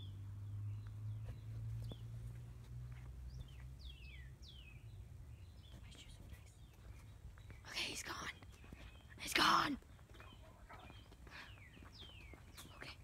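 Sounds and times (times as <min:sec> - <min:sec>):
birds whistling: 0:03.3 - 0:13.0.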